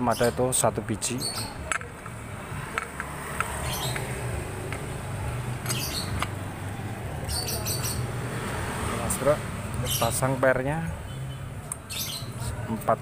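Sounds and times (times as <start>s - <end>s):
metallic clicks of clutch parts: 1.3s - 6.4s.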